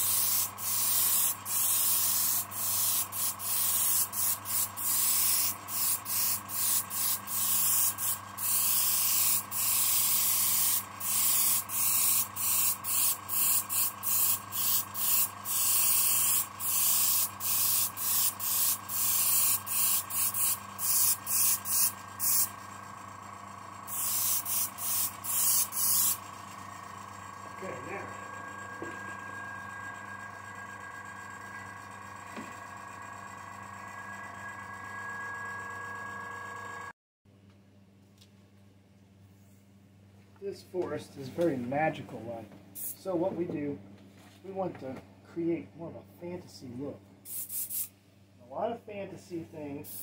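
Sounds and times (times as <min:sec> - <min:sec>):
airbrush spraying in spurts: 0:00.0 - 0:22.6, 0:23.9 - 0:26.5, 0:42.8 - 0:43.0, 0:47.3 - 0:47.9
air compressor hum: 0:00.0 - 0:36.9, 0:42.8 - 0:43.1, 0:47.2 - 0:48.0, 0:49.7 - 0:50.0.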